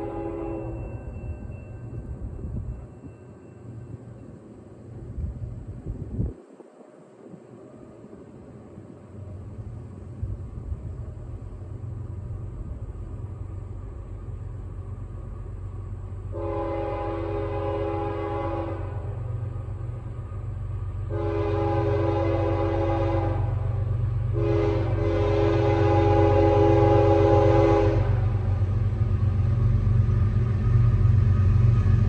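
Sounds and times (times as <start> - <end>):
train air horn blasts: 0.0 - 1.0, 16.3 - 19.4, 21.1 - 28.6
diesel locomotive engine rumble: 0.0 - 32.0.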